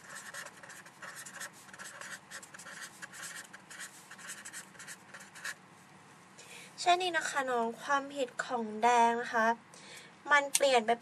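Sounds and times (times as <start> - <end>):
marker pen writing on paper: 0.0 - 5.6.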